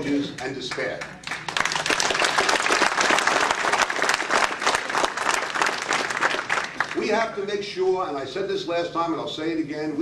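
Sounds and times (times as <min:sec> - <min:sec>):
audience applauding: 0:00.7 - 0:07.2.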